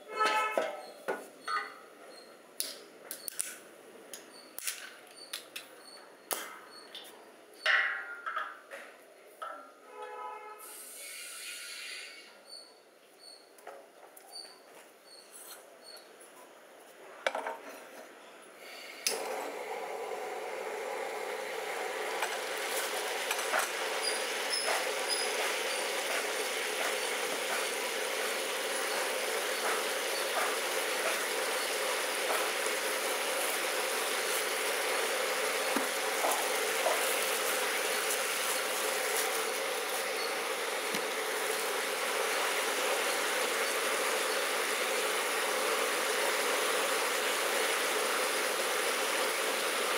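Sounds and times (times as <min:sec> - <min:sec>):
vegetables sizzling in a pot: 0:19.1 - 0:49.9.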